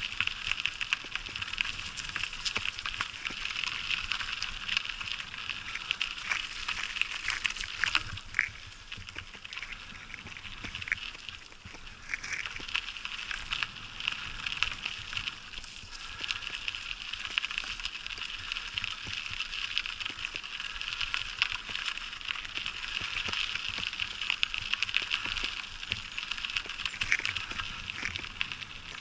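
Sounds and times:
bicycle tyres on gravel: 0.0s - 29.0s.

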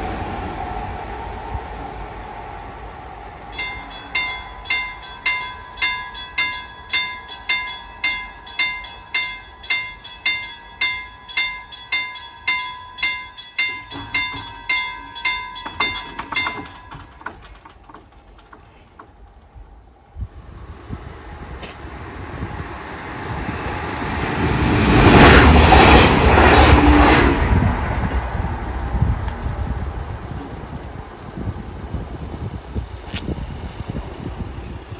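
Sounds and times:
passing train rumble: 0.0s - 34.9s
level crossing warning bell: 3.5s - 19.2s.

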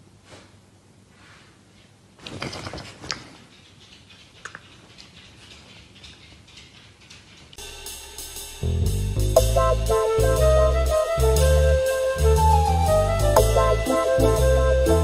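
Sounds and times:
dog jaws clacking: 2.3s - 7.6s
jazz music with brass: 7.7s - 15.0s.

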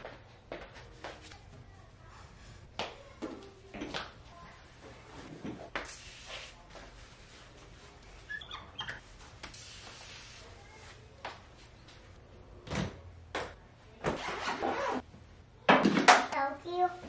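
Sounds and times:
cloth wiping and rubbing: 4.6s - 11.0s.

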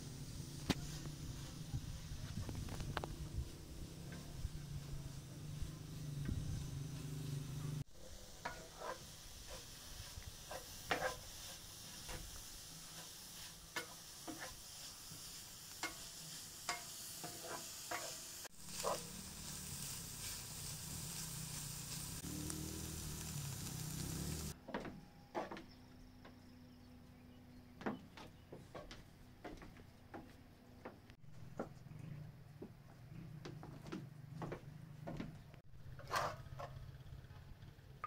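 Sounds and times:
food sizzling in a frying pan: 0.0s - 24.6s.

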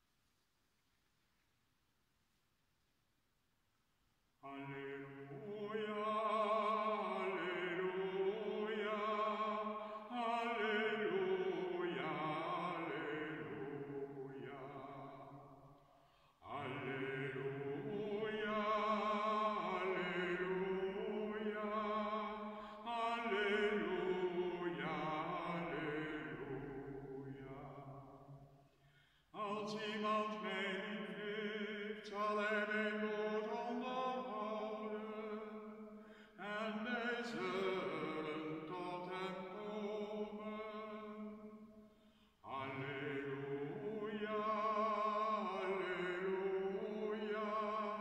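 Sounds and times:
man chanting unaccompanied: 4.4s - 15.2s, 16.5s - 28.0s, 36.4s - 41.3s, 42.5s - 48.0s.

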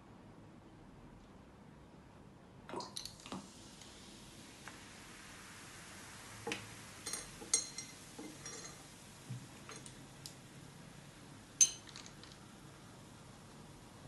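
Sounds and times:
candies clinking against glass: 11.6s - 12.3s.

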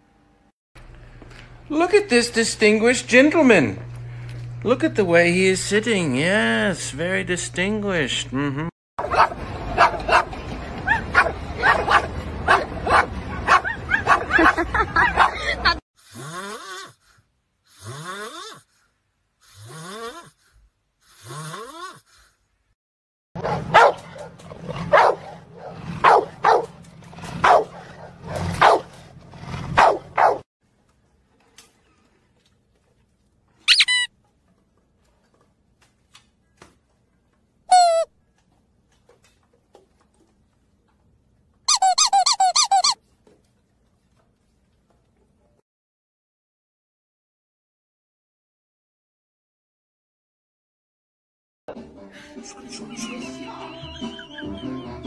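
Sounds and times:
puppy snoring: 16.0s - 17.0s, 17.7s - 18.7s, 19.4s - 20.4s, 21.0s - 22.1s
puppy squeaking: 33.7s - 34.1s, 37.7s - 38.1s, 41.7s - 43.0s.

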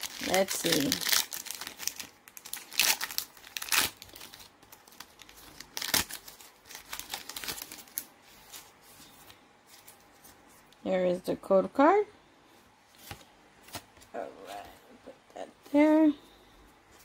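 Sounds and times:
foil wrapper crinkling: 0.0s - 10.4s.

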